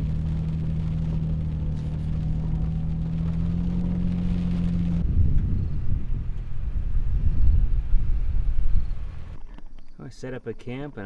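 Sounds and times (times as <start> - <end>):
vehicle engine droning: 0.0 - 9.6
rough uneven low rumble: 0.0 - 11.0.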